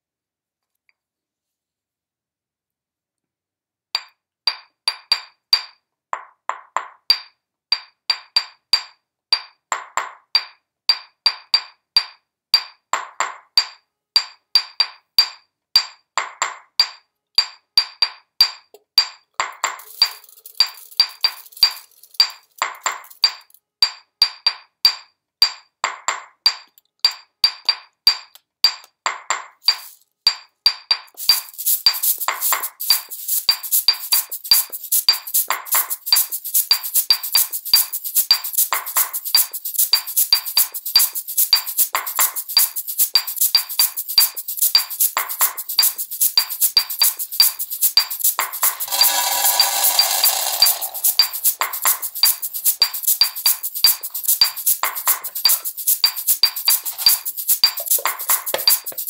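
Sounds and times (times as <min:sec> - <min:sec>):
stone mortar and pestle strikes: 0:04.0 - 0:31.5, 0:44.2 - 0:59.0
shaken jar rattling: 0:19.6 - 0:23.6, 0:29.6 - 0:30.1, 0:31.1 - 0:59.0.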